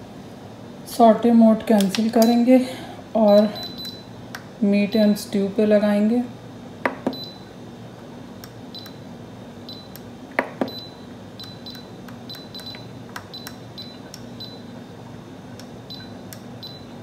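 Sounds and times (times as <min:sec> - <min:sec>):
high electronic beeps with clicks: 0:10.6 - 0:14.6.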